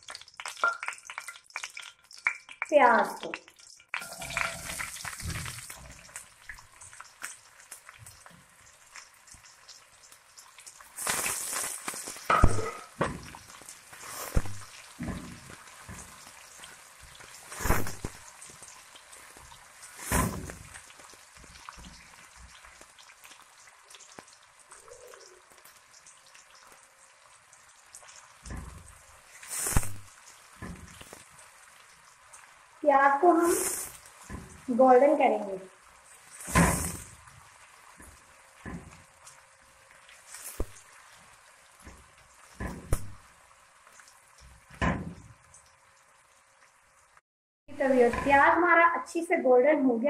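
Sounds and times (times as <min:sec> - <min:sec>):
onions sizzling in hot oil: 0:00.0 - 0:50.0
spatula striking steel pan: 0:12.3 - 0:13.2.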